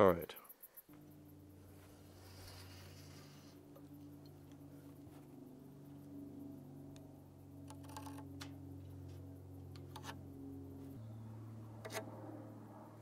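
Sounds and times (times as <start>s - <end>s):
faint low hum: 0.0s - 13.0s
tools clicking on wood: 7.7s - 8.5s.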